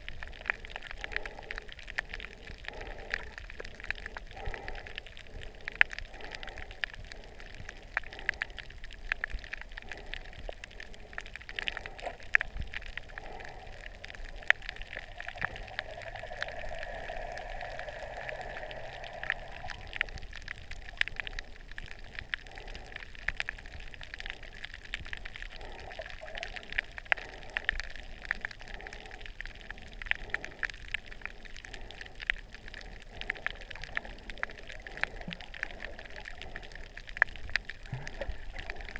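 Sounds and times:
underwater crackling clicks: 0.0s - 38.9s
moving water wash: 10.9s - 22.9s, 25.5s - 30.6s
steady hum: 15.0s - 20.3s.

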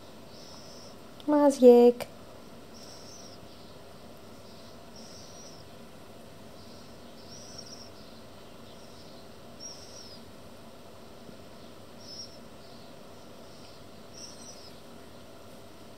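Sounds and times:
bird chirping: 0.0s - 1.0s, 2.7s - 5.9s, 6.5s - 10.3s, 11.5s - 15.0s
steady background hiss: 0.0s - 15.9s.

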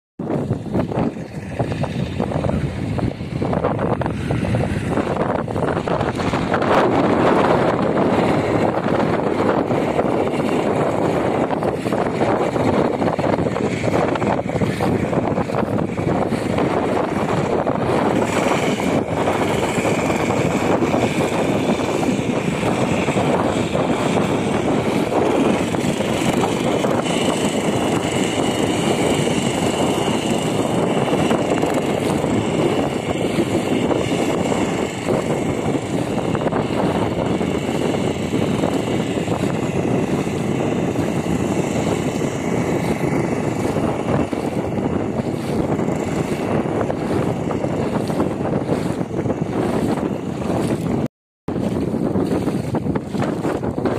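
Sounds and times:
boat engine running: 0.2s - 53.9s.

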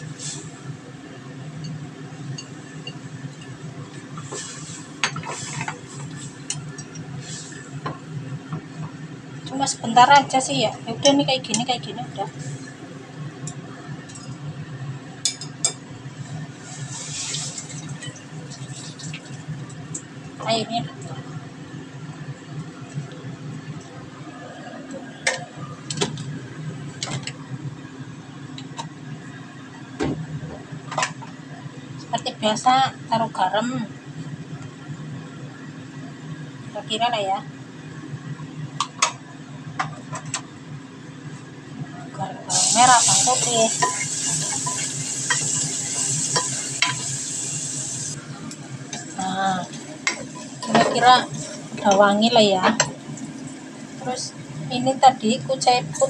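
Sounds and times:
steady low hum: 0.0s - 56.0s
chopsticks stirring noodles: 4.1s - 7.8s, 42.7s - 47.0s.

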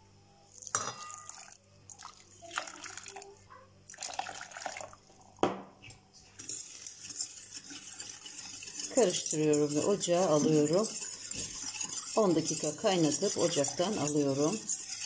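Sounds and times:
water pouring into a pot: 0.6s - 5.4s.

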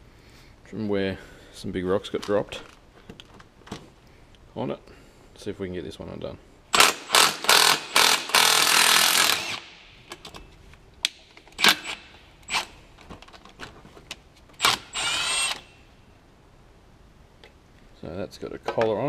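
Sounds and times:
impact wrench hammering: 6.8s - 9.8s.

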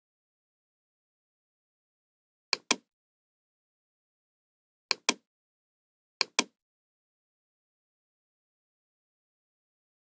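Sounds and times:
computer mouse clicks: 2.6s - 2.9s, 4.9s - 5.2s, 6.2s - 6.6s.

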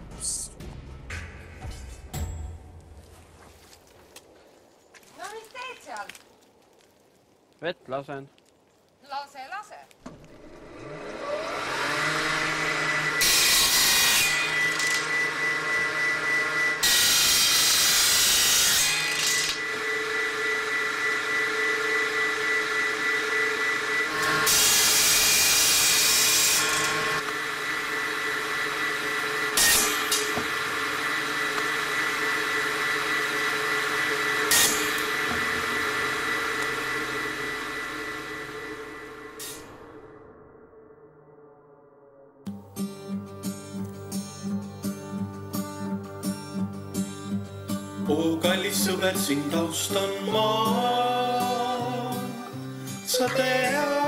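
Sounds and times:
electric water pump running: 10.2s - 40.1s.

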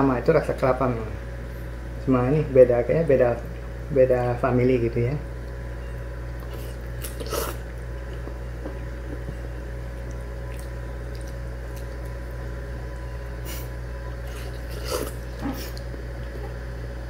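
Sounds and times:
steady background hum: 0.0s - 17.0s
person slurping noodles: 6.5s - 7.6s, 13.5s - 15.8s.

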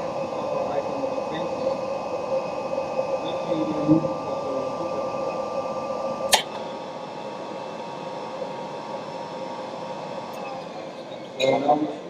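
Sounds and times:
robot arm machine hum and whine: 0.0s - 12.0s
sharp click: 6.3s - 6.6s.

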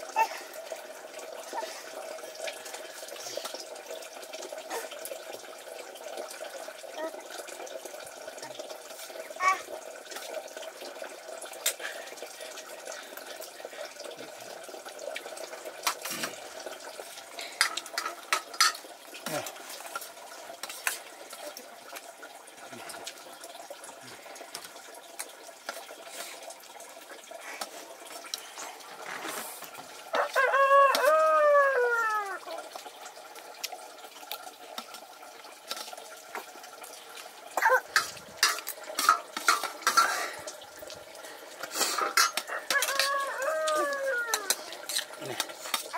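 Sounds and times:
running water rushing: 0.0s - 45.9s
rooster crowing: 30.1s - 32.4s, 42.4s - 44.7s.

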